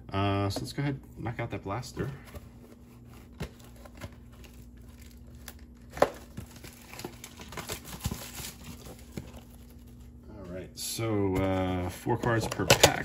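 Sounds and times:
plastic wrapping crinkling: 2.9s - 10.2s.

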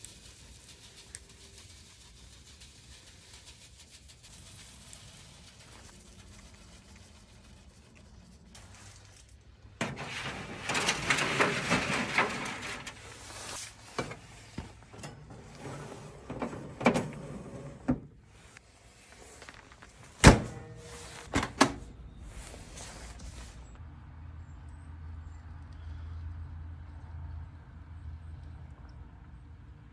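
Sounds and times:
rustling and scraping: 0.0s - 21.6s, 22.2s - 23.8s.

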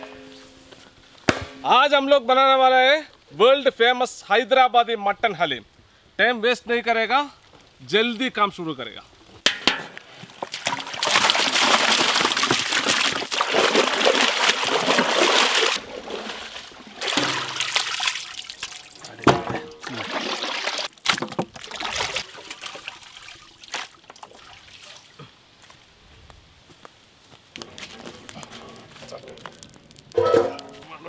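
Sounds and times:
water pouring and splashing: 10.0s - 25.3s.

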